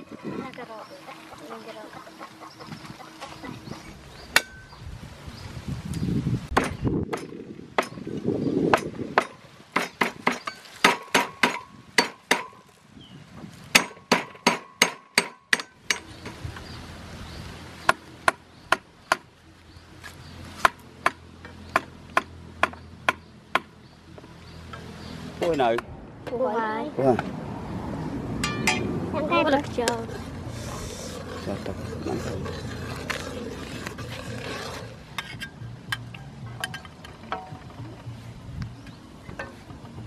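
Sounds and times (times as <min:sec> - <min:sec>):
cleaver chopping on wooden board: 0:06.6 - 0:08.0, 0:08.7 - 0:12.5, 0:13.8 - 0:16.0.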